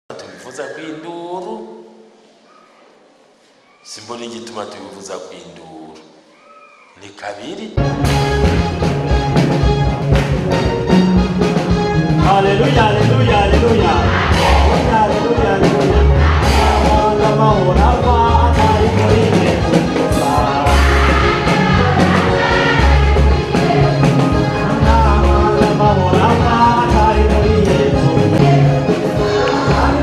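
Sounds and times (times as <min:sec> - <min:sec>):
crowd singing gospel song: 0:12.2 - 0:30.0
heavy pulsing bass beat: 0:12.8 - 0:15.0, 0:16.1 - 0:17.9.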